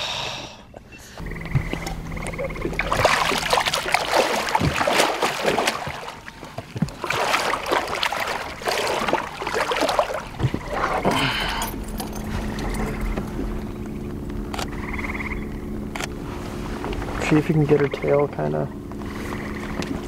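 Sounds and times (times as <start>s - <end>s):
water splashing in landing net: 2.6s - 11.7s.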